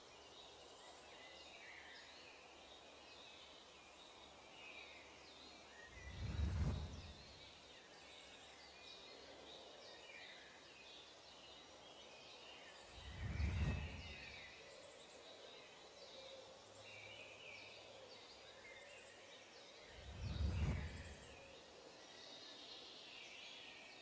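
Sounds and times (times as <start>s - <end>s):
small birds chirping: 0.0s - 24.0s
low whooshes: 6.0s - 7.4s, 13.0s - 14.5s, 20.0s - 21.4s.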